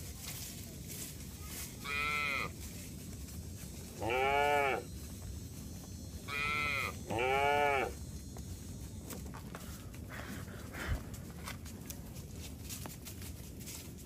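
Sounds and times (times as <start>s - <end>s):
young cattle calling: 1.8s - 2.5s, 4.0s - 4.9s, 6.3s - 8.0s.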